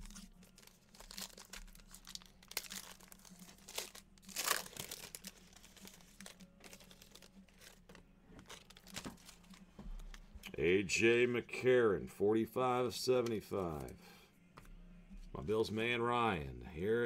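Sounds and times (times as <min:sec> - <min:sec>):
foil wrapper crinkling and tearing: 0:00.0 - 0:09.6.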